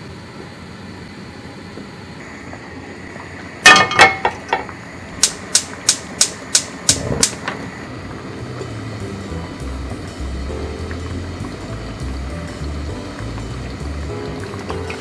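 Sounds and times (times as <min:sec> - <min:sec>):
gas igniter clicking: 0:05.2 - 0:07.6.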